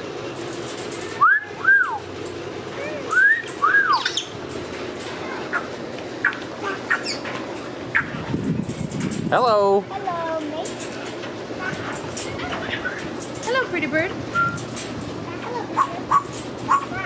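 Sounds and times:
parrot whistling: 0:01.2 - 0:02.0, 0:03.1 - 0:04.3, 0:14.4 - 0:14.6
high chirps: 0:03.1 - 0:04.4.

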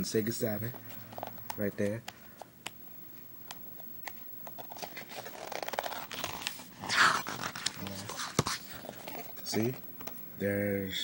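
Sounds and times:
book pages rustling: 0:00.7 - 0:09.7
page turning swish: 0:04.8 - 0:08.8.

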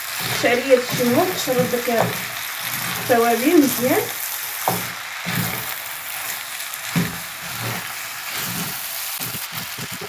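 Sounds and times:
filling sizzling in a frying pan: 0:00.0 - 0:10.0
soft knocks of stirring in pan: 0:04.6 - 0:05.7, 0:06.9 - 0:07.8.

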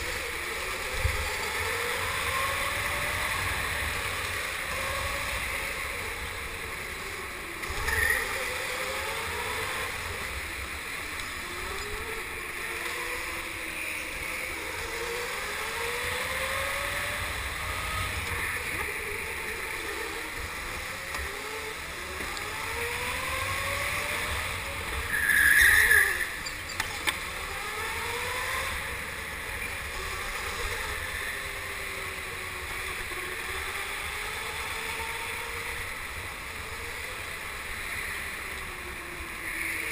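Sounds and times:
go-kart motor accelerating: 0:00.0 - 0:39.9.

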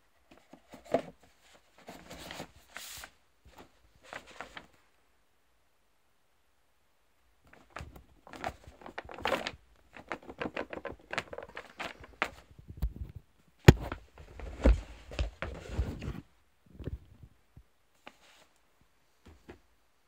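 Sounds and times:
paper rustling: 0:00.3 - 0:04.8, 0:07.5 - 0:12.5.

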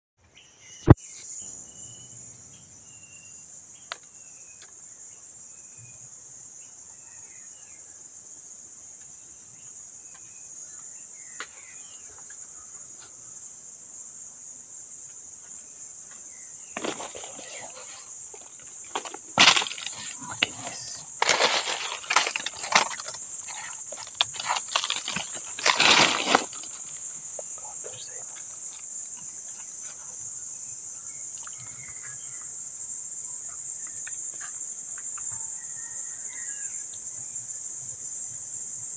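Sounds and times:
insect chorus: 0:00.3 - 0:38.9
stones and dry leaves handled: 0:16.8 - 0:27.1.

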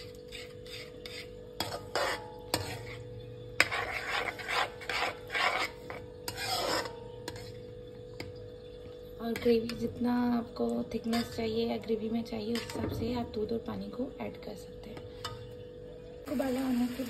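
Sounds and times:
metal spatula scraping a pan: 0:00.0 - 0:08.2, 0:11.0 - 0:11.8, 0:12.5 - 0:13.2.

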